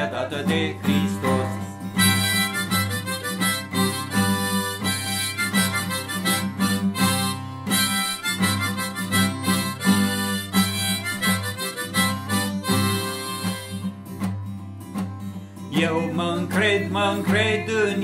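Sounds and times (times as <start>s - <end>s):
strummed acoustic guitar: 0.0s - 18.0s
harmonica melody: 1.3s - 14.2s.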